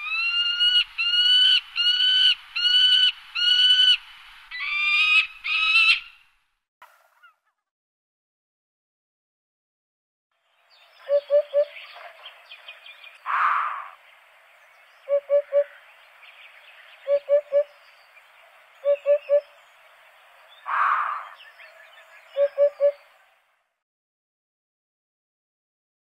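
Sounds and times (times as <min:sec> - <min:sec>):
bird hooting song: 0:10.7 - 0:14.0, 0:15.0 - 0:18.2, 0:18.8 - 0:19.7, 0:20.5 - 0:23.3.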